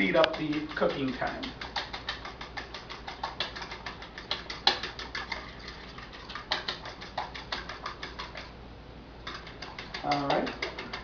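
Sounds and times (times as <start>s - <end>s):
whisk clicking against bowl: 0.0s - 8.6s, 9.2s - 11.0s.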